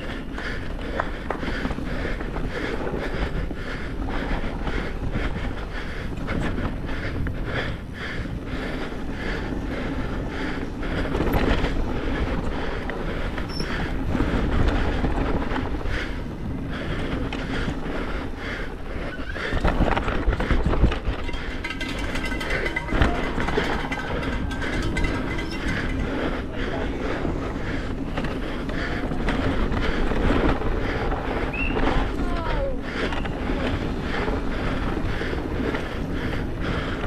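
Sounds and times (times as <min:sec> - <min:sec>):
wind rumble on microphone: 0:00.0 - 0:37.0
mountain bike rattling over rock: 0:19.2 - 0:36.2.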